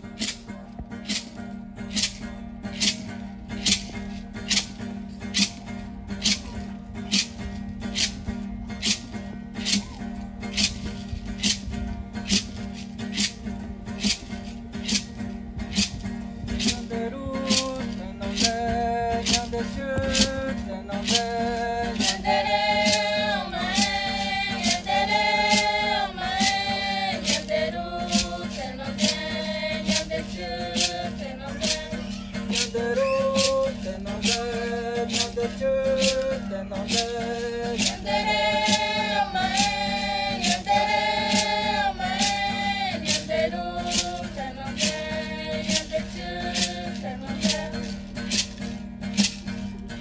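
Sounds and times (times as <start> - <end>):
acoustic guitar: 0.0 - 50.0
steady beat: 0.1 - 49.4
group of voices singing: 15.7 - 48.6.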